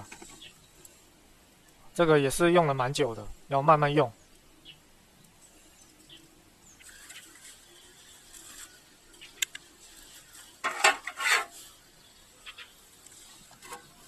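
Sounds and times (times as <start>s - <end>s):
faint ticks: 4.6s - 9.8s, 12.4s - 13.3s.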